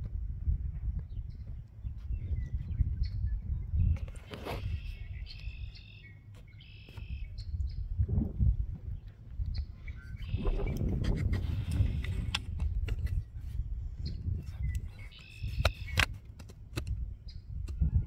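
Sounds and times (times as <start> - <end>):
wind buffeting microphone: 0.0 - 5.6, 7.0 - 18.0
bird chirping: 1.0 - 7.9, 8.9 - 10.9, 14.0 - 16.2, 17.1 - 17.5.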